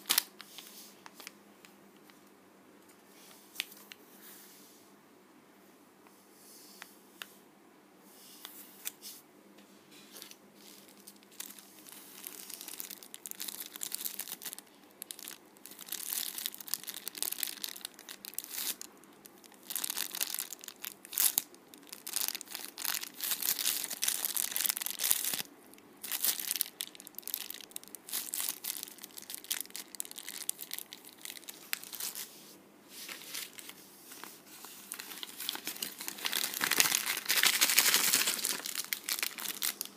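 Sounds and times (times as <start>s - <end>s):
plastic bags crinkling: 10.2s - 32.3s, 33.0s - 39.9s
paper bag crinkling: 10.6s - 18.9s, 19.6s - 32.3s, 33.0s - 39.9s.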